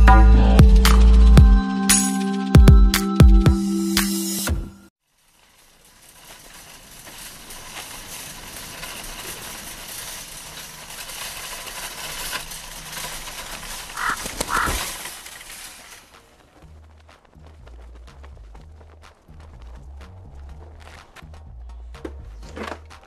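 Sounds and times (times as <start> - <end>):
outdoor desert ambience: 0.0 - 23.0.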